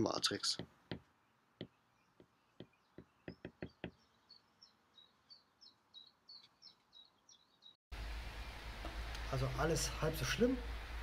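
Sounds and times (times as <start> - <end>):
stylus tapping on tablet screen: 0.6 - 4.0
faint high bird chirps: 1.2 - 7.8.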